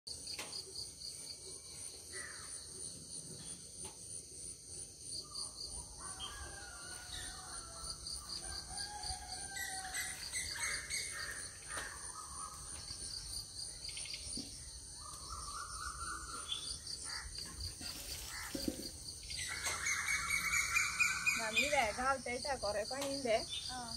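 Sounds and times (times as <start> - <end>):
insects trilling: 0.1 - 23.9
birds chirping: 6.1 - 23.9.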